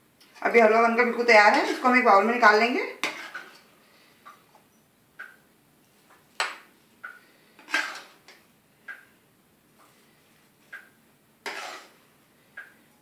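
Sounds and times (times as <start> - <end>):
spoon scraping: 3.0 - 3.6, 7.6 - 8.3, 9.8 - 12.0.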